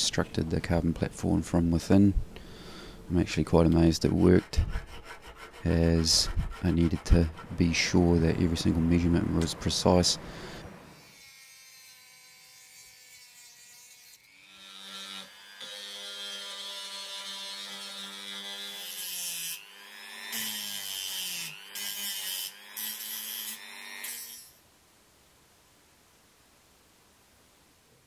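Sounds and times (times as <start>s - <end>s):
rotary tool whining and grinding: 10.9s - 24.6s.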